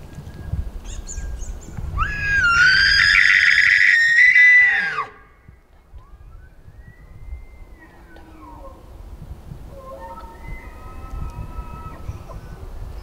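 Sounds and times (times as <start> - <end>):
elk bugling: 6.9 - 12.7.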